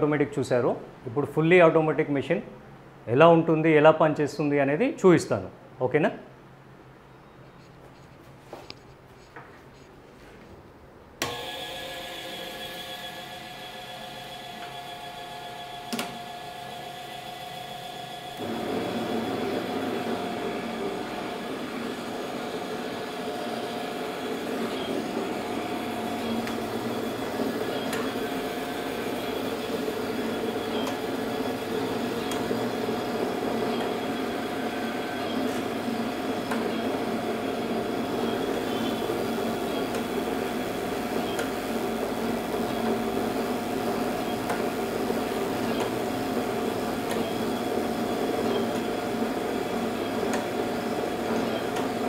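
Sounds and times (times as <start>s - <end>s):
machine motor whirring: 11.2s - 52.0s.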